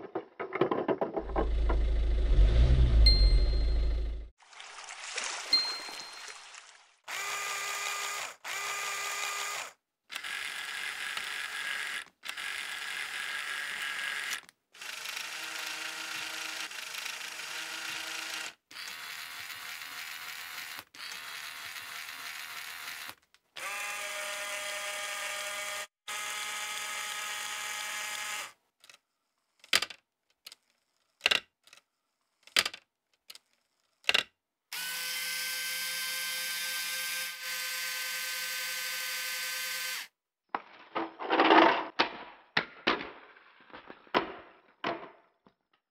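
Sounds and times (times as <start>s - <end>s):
electric motors whirring: 7.1s - 28.6s.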